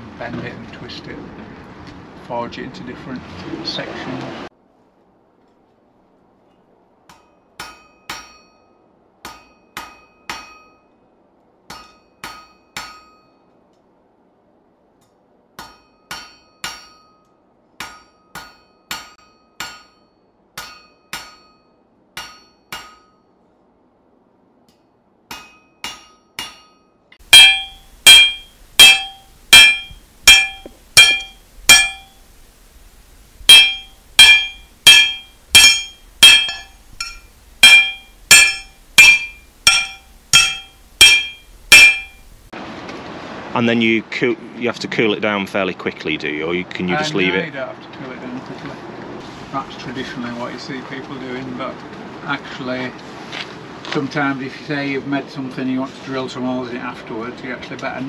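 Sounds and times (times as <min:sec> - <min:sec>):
hammer ringing on an anvil: 0:07.1 - 0:11.0, 0:11.7 - 0:13.5, 0:15.6 - 0:23.4, 0:25.3 - 0:32.2, 0:33.5 - 0:42.3.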